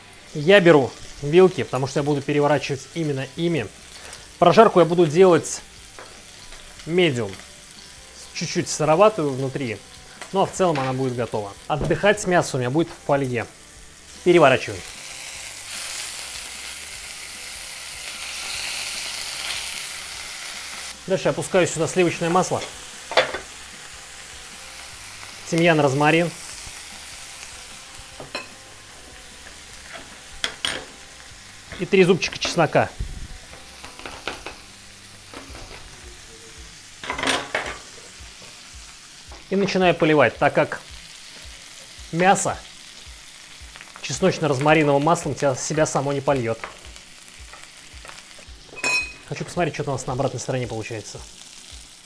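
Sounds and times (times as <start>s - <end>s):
steaks sizzling in a frying pan: 0.0s - 52.0s.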